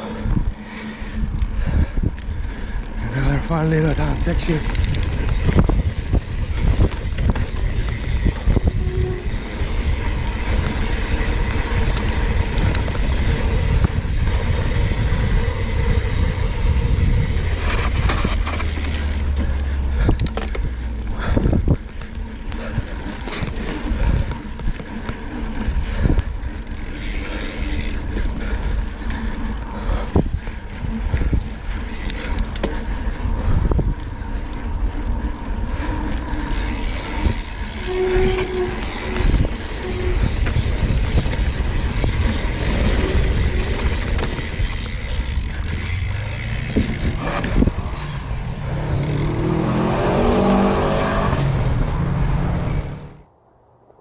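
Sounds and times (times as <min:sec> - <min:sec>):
bike rattling and knocking: 0:00.0 - 0:49.3
tyres running over dirt: 0:00.0 - 0:50.6
wind rumbling on microphone: 0:00.0 - 0:53.3.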